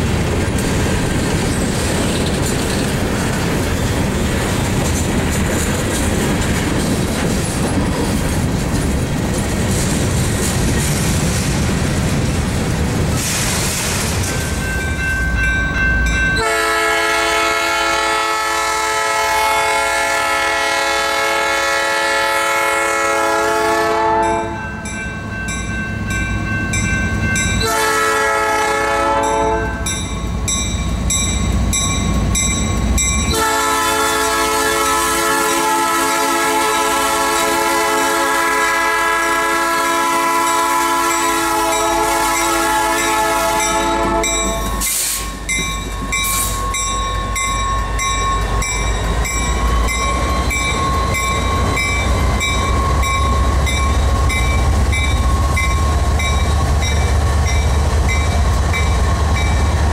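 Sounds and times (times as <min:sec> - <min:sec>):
train wheels rumbling on rails: 0:00.0 - 0:59.9
locomotive air horn blasts: 0:16.4 - 0:24.7, 0:27.6 - 0:29.8, 0:33.3 - 0:45.3.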